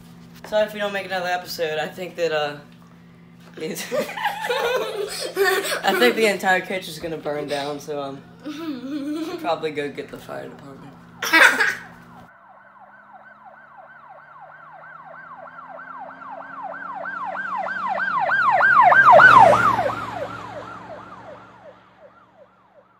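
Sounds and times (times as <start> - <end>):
siren in fast yelp: 11.8 - 22.9.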